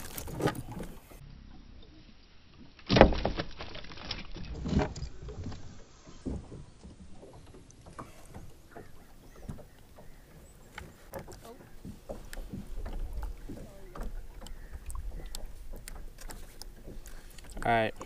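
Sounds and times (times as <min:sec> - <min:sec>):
fish splashing in kayak: 0:00.0 - 0:01.2, 0:07.2 - 0:17.6.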